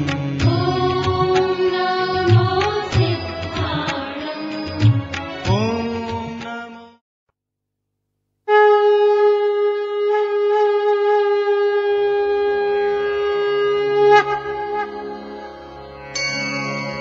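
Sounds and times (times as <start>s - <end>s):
conch shell blown: 8.5s - 17.0s
low musical drone: 12.3s - 17.0s.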